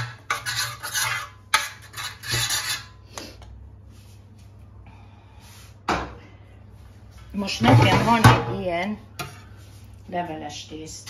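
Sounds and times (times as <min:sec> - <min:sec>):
butter scraping baking tin: 0:00.0 - 0:03.0.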